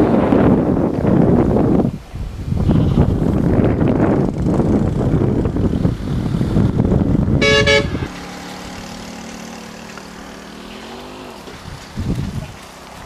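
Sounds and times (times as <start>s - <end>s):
wind buffeting microphone: 0.0s - 13.0s
vehicle horn toots: 7.4s - 8.1s.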